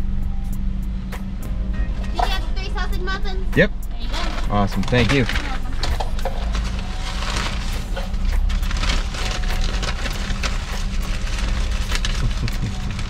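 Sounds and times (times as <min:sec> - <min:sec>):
car engine hum: 0:00.0 - 0:13.0
paper bag rustling: 0:04.0 - 0:13.0.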